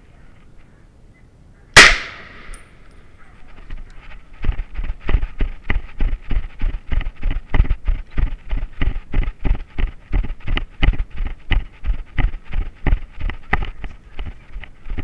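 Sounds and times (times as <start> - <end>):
rifle shot: 1.8 - 2.6
footsteps on gravel: 3.2 - 15.0.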